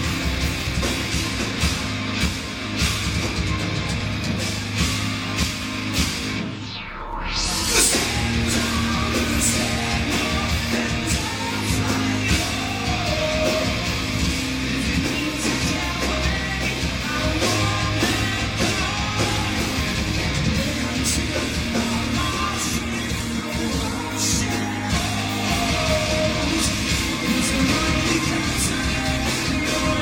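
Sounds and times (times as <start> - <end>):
drums with cymbals: 0.0 - 6.6, 7.5 - 30.0
distorted electric guitars: 0.0 - 30.0
person singing: 7.4 - 30.0.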